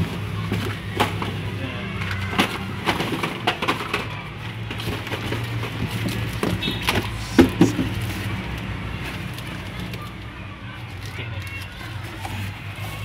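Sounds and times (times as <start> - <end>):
cardboard boxes knocking and sliding: 2.3 - 8.3.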